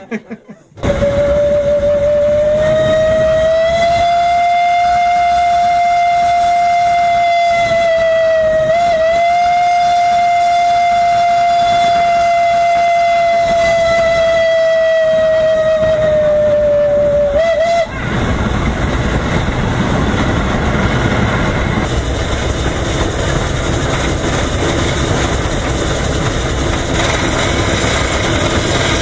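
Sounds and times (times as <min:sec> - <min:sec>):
steam whistle blast: 0:00.8 - 0:18.0.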